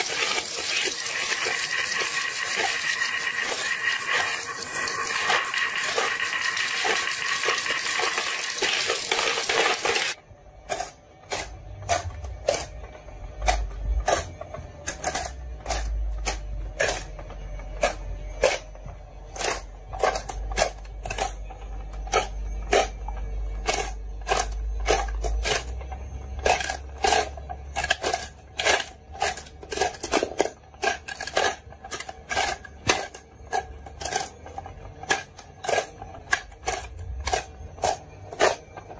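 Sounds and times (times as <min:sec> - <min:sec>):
glass marbles rolling down wood: 0:00.4 - 0:10.2.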